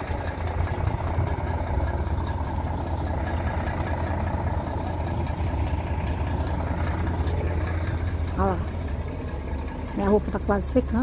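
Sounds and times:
diesel truck engine idling: 0:00.0 - 0:11.0.

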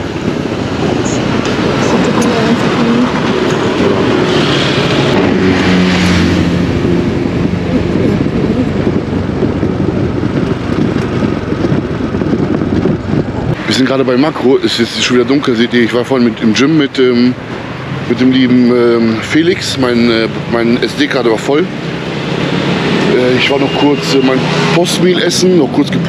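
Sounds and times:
vehicle engine running: 0:00.0 - 0:14.8
road noise: 0:00.0 - 0:26.0.

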